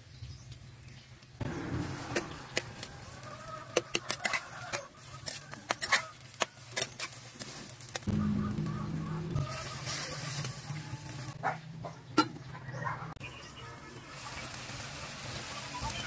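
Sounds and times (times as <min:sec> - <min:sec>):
metal spatula scraping steel pan: 0:03.6 - 0:07.6, 0:09.3 - 0:11.3.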